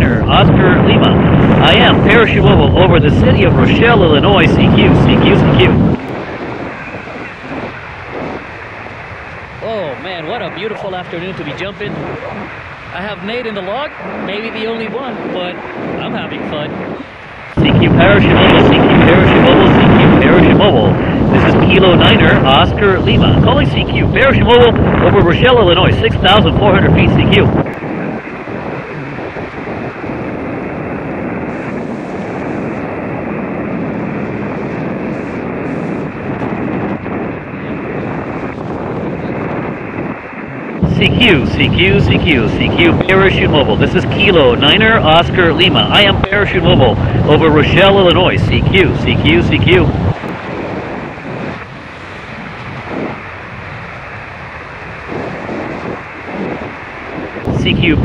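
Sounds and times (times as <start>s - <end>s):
wind rushing on microphone: 0.0s - 58.0s.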